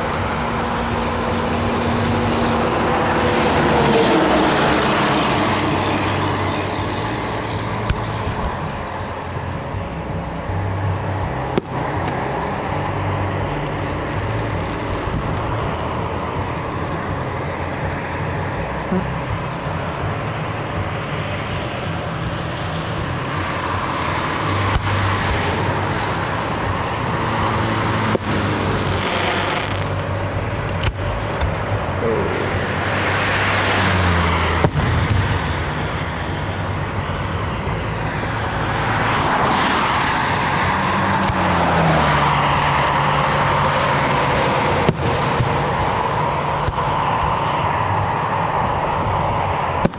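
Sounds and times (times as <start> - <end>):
road traffic hum: 0.0 - 49.9
vehicles passing: 0.0 - 49.9
distant fireworks bangs: 11.5 - 17.3, 28.0 - 31.8, 44.5 - 47.0.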